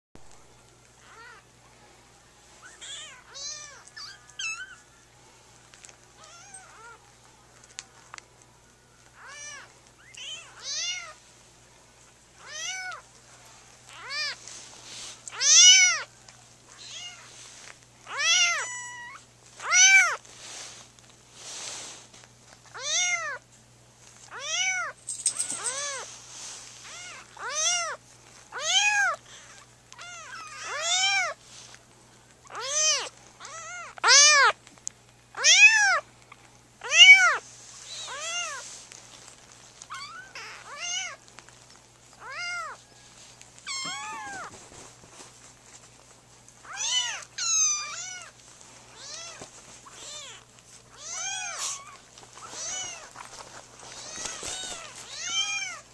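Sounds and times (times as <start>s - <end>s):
kittens mewing: 15.3s - 16.1s, 18.0s - 20.2s, 32.5s - 34.6s, 36.8s - 38.6s, 43.6s - 44.6s, 46.6s - 55.9s.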